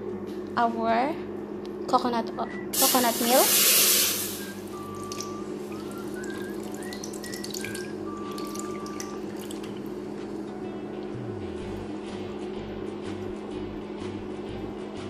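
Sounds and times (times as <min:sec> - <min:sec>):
liquid trickling into metal pot: 0:03.5 - 0:09.9.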